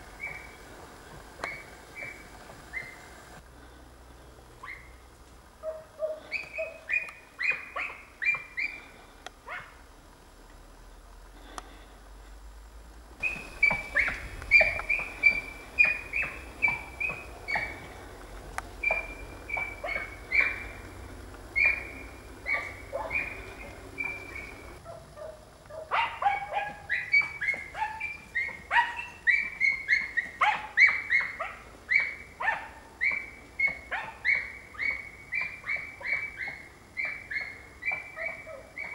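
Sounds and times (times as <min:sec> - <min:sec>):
dog barking high and sharp: 0:05.6 - 0:08.5, 0:21.6 - 0:23.4, 0:24.8 - 0:33.2, 0:33.9 - 0:35.0.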